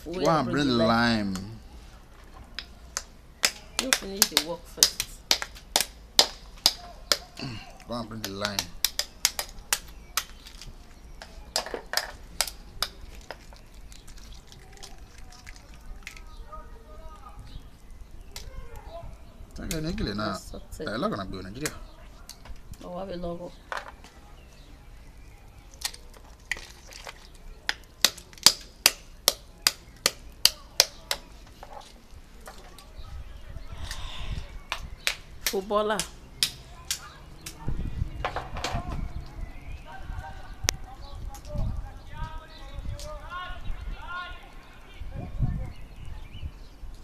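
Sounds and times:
knife cracking snail shells: 3.0 - 16.3, 25.1 - 32.0.

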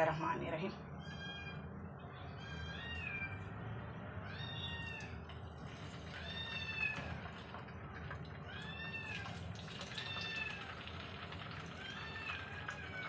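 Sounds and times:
cat meowing: 0.9 - 3.6, 4.2 - 5.3, 5.9 - 7.6, 8.3 - 11.0, 11.7 - 13.0
fish sizzling in oil: 5.6 - 13.0.

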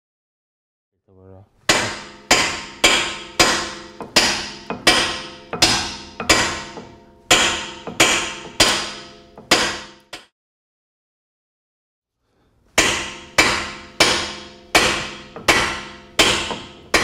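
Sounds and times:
mallet striking steel punch: 1.7 - 10.3, 12.8 - 17.0.

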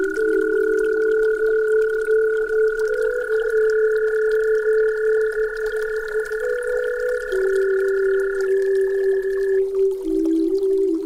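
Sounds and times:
electronic sine tones: 0.0 - 11.0.

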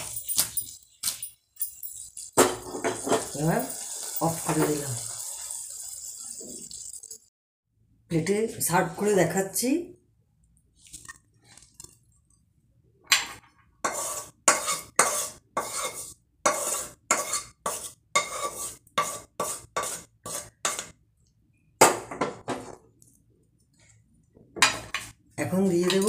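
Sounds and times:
spatula scraping a pan: 13.8 - 21.0.

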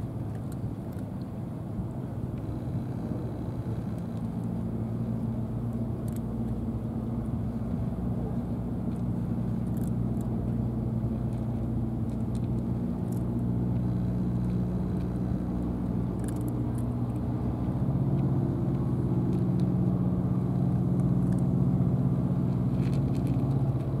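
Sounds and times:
low engine hum: 0.0 - 24.0
cat crunching dry kibble: 8.8 - 24.0.

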